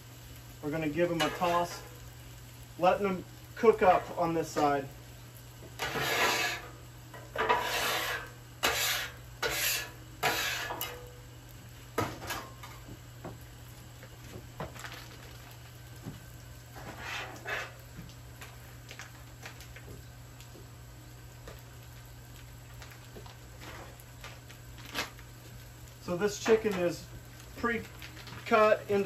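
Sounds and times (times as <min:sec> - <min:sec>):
metal spatulas scraping griddle: 0:01.1 - 0:02.0, 0:05.8 - 0:11.1, 0:16.8 - 0:17.8.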